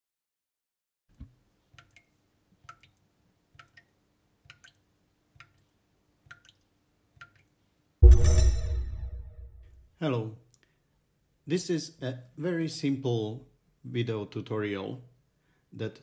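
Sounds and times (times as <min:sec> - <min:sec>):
soft drip-like plinks: 0:01.1 - 0:07.6.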